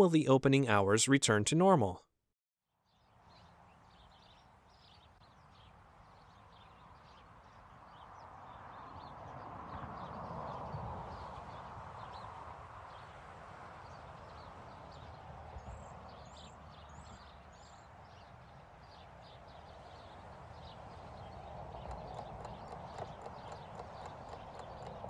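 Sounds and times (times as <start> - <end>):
light irregular taps: 21.8 - 25.0.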